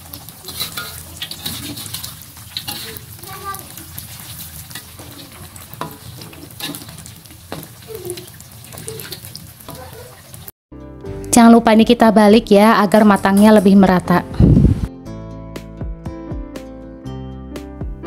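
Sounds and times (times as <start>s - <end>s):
batter sizzling in hot oil: 0.0s - 10.6s
metal spatula scraping wok: 0.1s - 10.4s.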